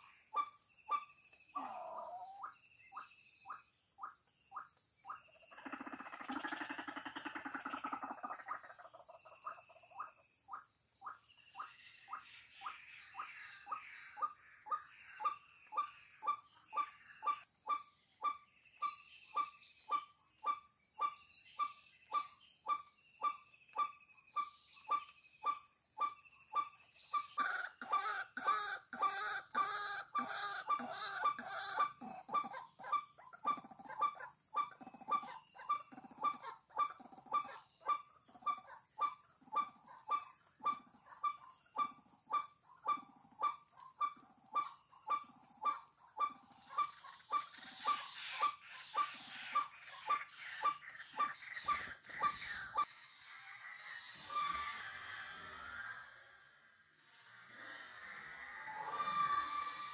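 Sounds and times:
high insect drone: 0:00.0 - 0:32.3, 0:41.8 - 0:59.9
waterhens calling harsh kwak notes: 0:57.2 - 0:59.9.

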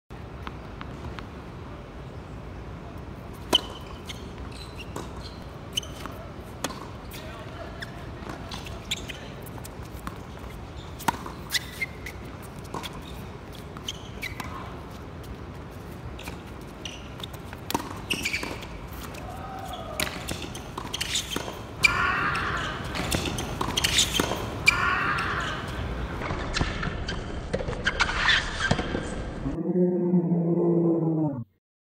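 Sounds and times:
tennis ball bouncing on hard court: 0:03.5 - 0:04.0, 0:04.9 - 0:07.0, 0:07.8 - 0:13.1, 0:17.2 - 0:18.8, 0:20.0 - 0:25.3.

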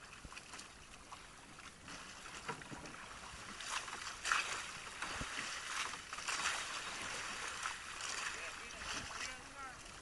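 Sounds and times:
water splashing against boat hull: 0:00.0 - 0:10.0.

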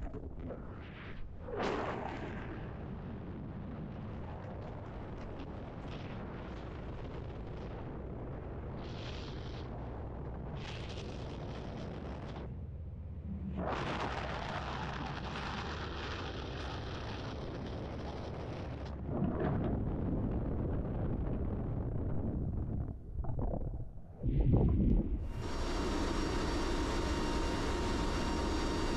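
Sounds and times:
wind buffeting microphone: 0:17.9 - 0:25.4.

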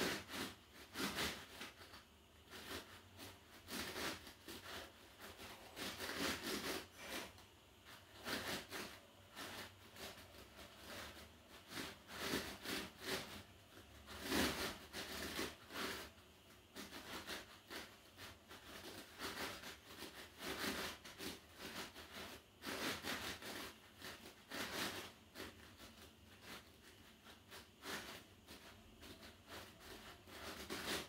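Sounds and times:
faint rustling and shuffling: 0:00.0 - 0:31.0.

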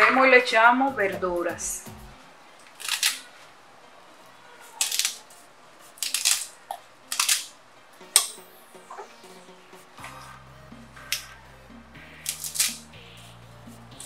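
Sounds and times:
herbs rustling and crackling: 0:02.6 - 0:03.6, 0:04.8 - 0:05.3, 0:05.9 - 0:07.6.

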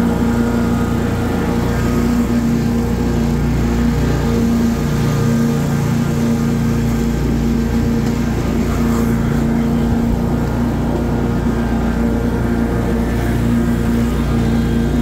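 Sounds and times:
lawn mower engine hum: 0:00.0 - 0:15.0
mower blade noise: 0:00.0 - 0:15.0.

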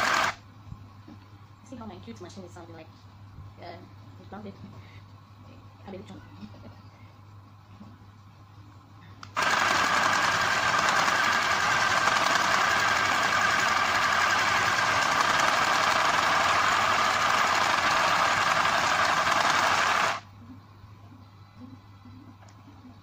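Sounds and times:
electric sewing machine stitching: 0:00.0 - 0:00.4, 0:09.4 - 0:20.2.

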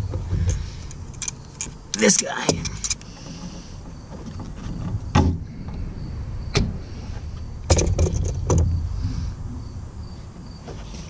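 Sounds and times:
handling knocks and clicks: 0:00.0 - 0:05.8, 0:07.7 - 0:08.8.

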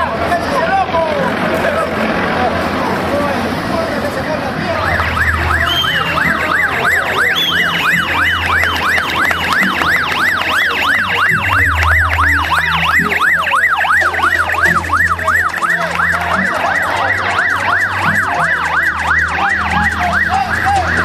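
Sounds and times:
vehicle engine humming: 0:01.0 - 0:21.0
yelping siren: 0:04.7 - 0:21.0.

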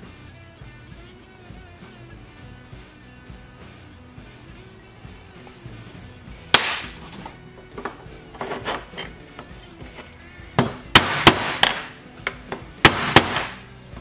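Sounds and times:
screwdriver tapping metal: 0:11.6 - 0:12.7.

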